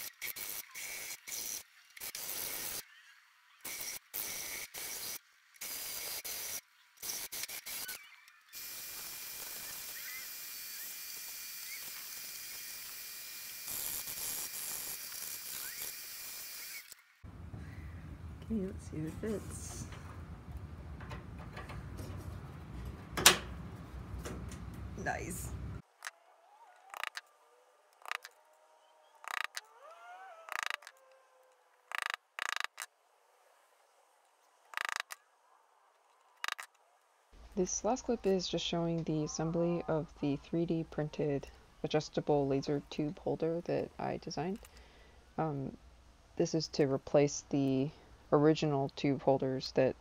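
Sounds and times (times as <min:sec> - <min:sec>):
plastic parts and screws clicking: 0:26.8 - 0:27.3, 0:27.9 - 0:28.4, 0:29.2 - 0:29.7, 0:30.5 - 0:31.2, 0:31.9 - 0:32.9, 0:34.7 - 0:35.2, 0:36.3 - 0:36.8.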